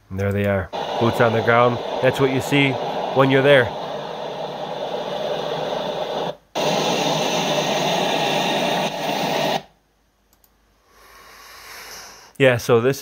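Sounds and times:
rushing noise through speakers: 0.8s - 9.6s.

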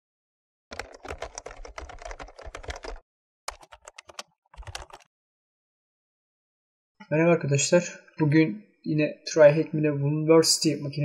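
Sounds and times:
keyboard typing clicks: 0.7s - 5.1s.

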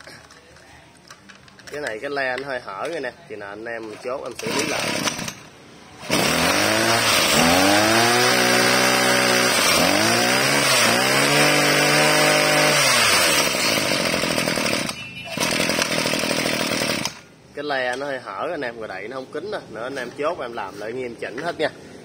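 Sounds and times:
brush-cutter engine revving: 4.3s - 5.4s, 6.0s - 17.3s.

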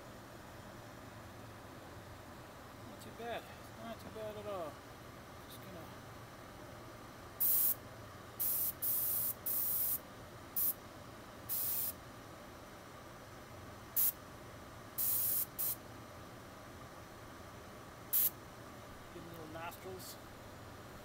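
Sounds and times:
airbrush spraying hisses: 7.4s - 7.8s, 8.4s - 10.0s, 11.5s - 12.0s, 15.0s - 15.8s, 18.2s - 18.4s.

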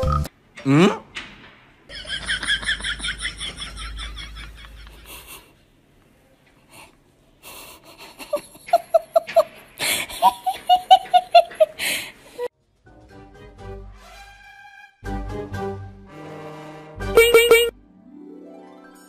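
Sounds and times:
wheezy laughter: 1.9s - 5.6s, 7.5s - 12.5s
person laughing ha-ha-ha: 2.0s - 5.5s, 7.6s - 12.5s.

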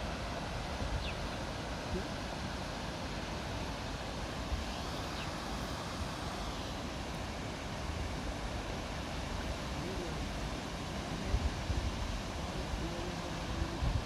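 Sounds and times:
river rapids rushing: 0.0s - 14.0s
wind buffeting microphone: 11.2s - 14.0s.

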